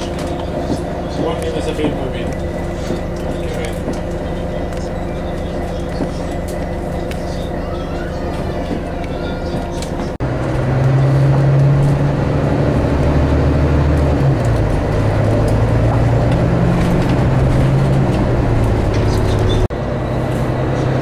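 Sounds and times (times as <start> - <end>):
road noise: 0.0 - 21.0
vehicle engine humming: 0.0 - 21.0.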